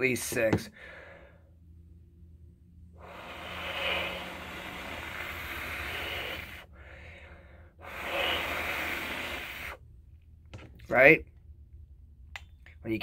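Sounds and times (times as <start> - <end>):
strong exhale: 0.7 - 1.5, 3.0 - 9.8
inhale through glass pipe: 2.9 - 9.8.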